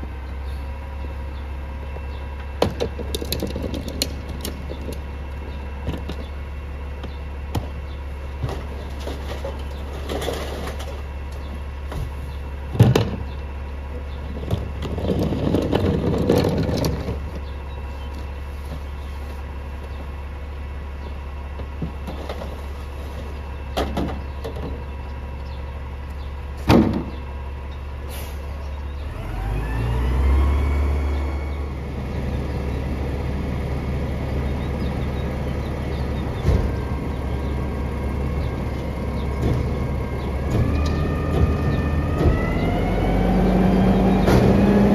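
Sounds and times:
garbage truck engine: 0.0 - 44.9
recyclables clattering: 8.4 - 11.2, 14.2 - 17.6
bins knocked against hopper: 26.6 - 27.2.

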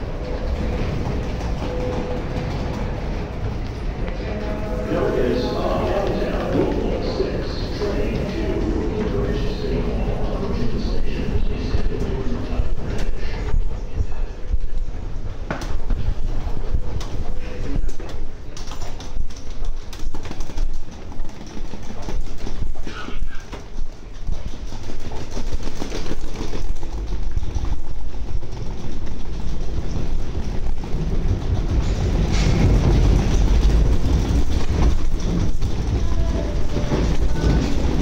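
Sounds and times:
subway train rumble: 0.0 - 38.0
scattered clatter: 18.6 - 38.0.

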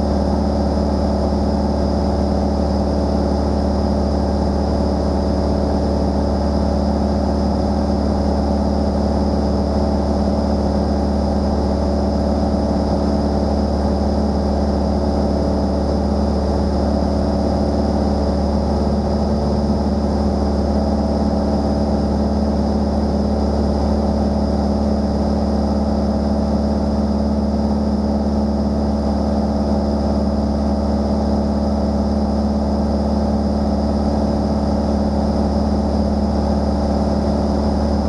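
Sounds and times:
light airplane engine drone: 0.0 - 38.0.

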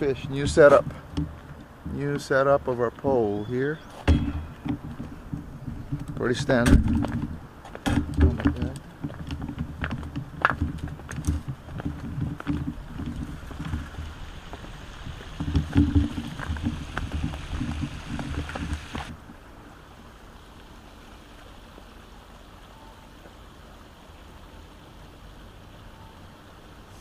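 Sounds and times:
wind rumbling on microphone: 0.0 - 19.8
low outdoor hiss: 0.0 - 27.0.

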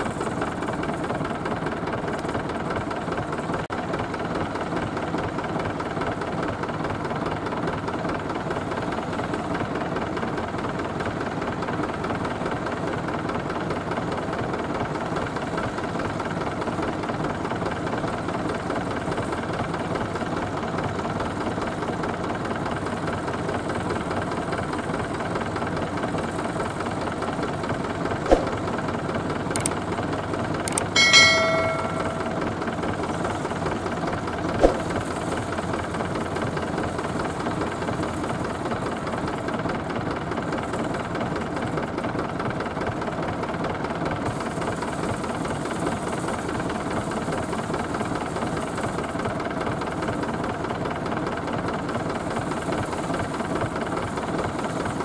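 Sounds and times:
tractor diesel engine running: 0.0 - 43.9
sharp metallic clanks: 30.7 - 32.6.

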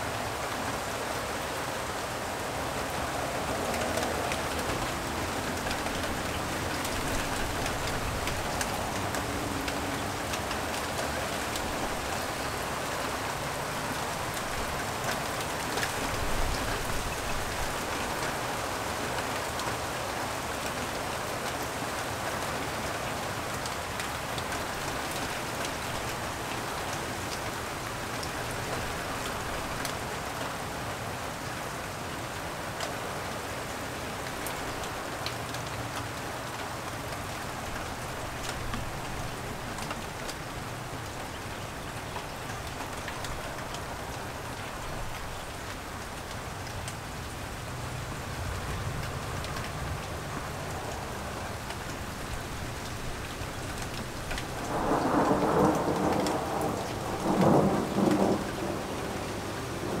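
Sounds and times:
light rain falling: 0.0 - 60.0
thunder rumbling: 54.4 - 60.0.

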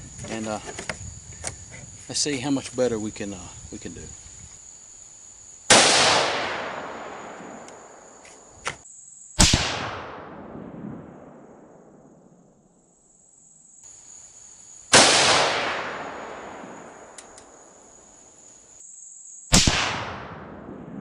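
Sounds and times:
rifle shots with echo: 5.7 - 8.0, 9.4 - 12.2, 14.9 - 17.2, 19.5 - 21.0.

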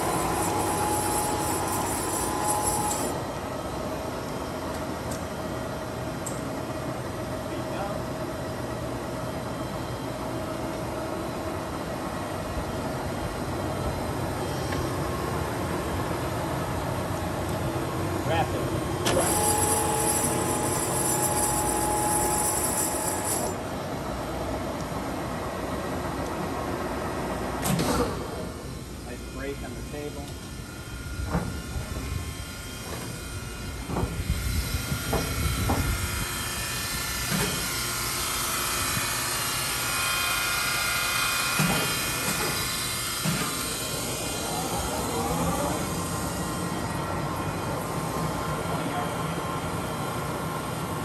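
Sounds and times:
electric motor and gear whine: 0.0 - 4.5, 11.2 - 24.2, 28.4 - 51.0.

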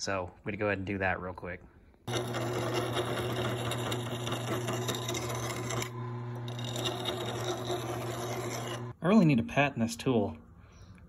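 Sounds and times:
drill press motor hum: 2.1 - 8.9
file rasping on steel: 2.1 - 9.0.

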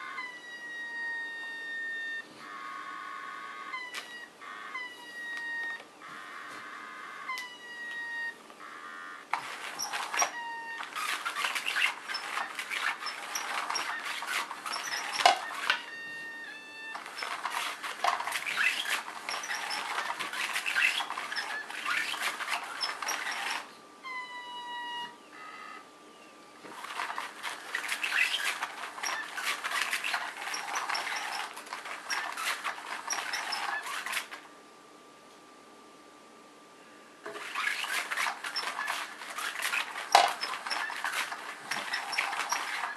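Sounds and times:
toy wand rustling and scraping: 9.3 - 16.2, 16.9 - 23.7, 26.7 - 34.4, 37.3 - 42.9.

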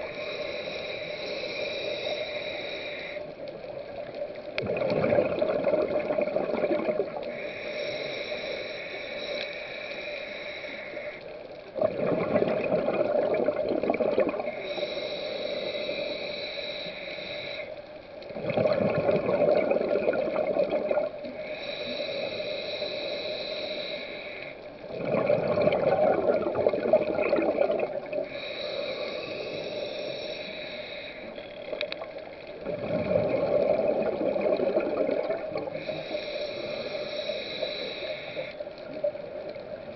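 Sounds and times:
hissing regulator inhale: 0.0 - 4.6, 6.1 - 11.6, 14.4 - 18.1, 21.2 - 27.2, 28.0 - 32.7, 33.3 - 39.6
exhaled bubbles rushing: 4.6 - 7.3, 11.8 - 14.5, 18.4 - 21.3, 24.9 - 28.3, 32.6 - 35.8.

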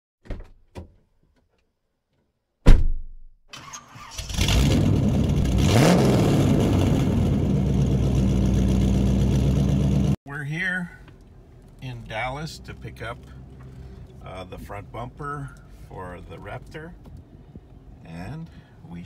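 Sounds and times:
loud thump: 2.6 - 3.3
car engine starting and idling: 3.5 - 18.7.

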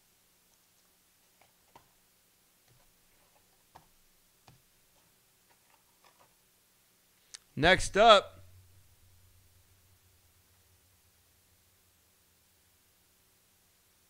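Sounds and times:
faint clicks and taps: 0.5 - 2.0, 2.6 - 6.4.

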